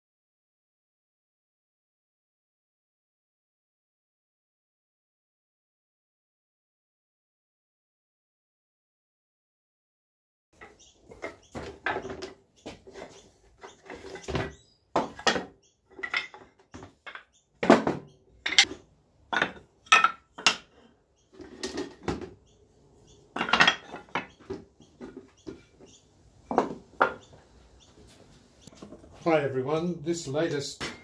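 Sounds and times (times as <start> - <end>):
wooden pieces clacking together: 10.6 - 22.5, 23.2 - 27.4.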